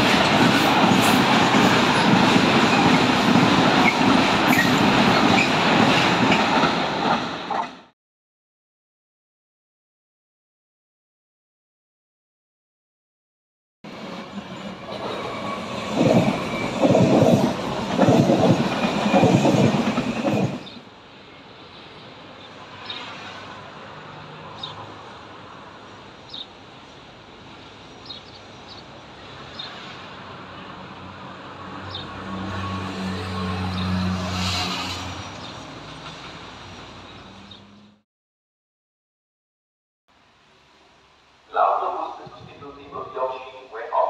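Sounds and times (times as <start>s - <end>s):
train clatter: 0.0s - 7.8s, 14.2s - 20.8s.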